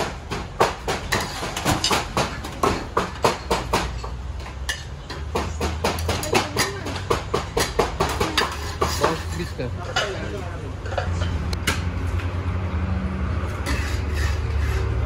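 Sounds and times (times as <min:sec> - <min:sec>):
metal skimmer scraping cauldron: 0:13.5 - 0:15.0.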